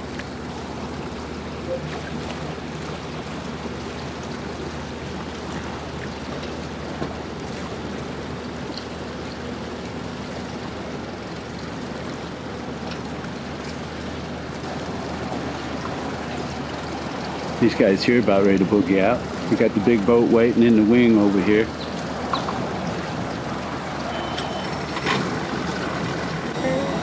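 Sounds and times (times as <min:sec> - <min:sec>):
low boat engine hum: 0:00.0 - 0:27.0
wash of water: 0:00.0 - 0:27.0.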